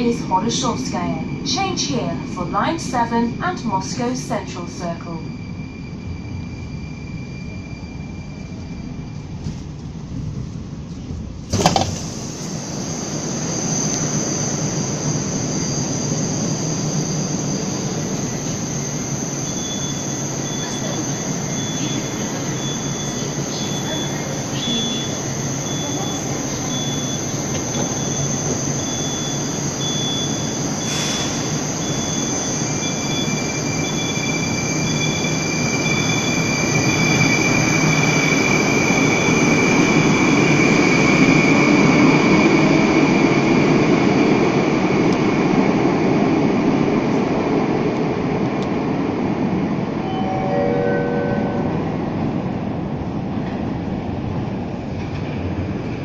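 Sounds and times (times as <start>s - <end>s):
train humming with high whine: 0.0s - 56.0s
high beeping: 14.9s - 39.9s, 50.0s - 52.9s.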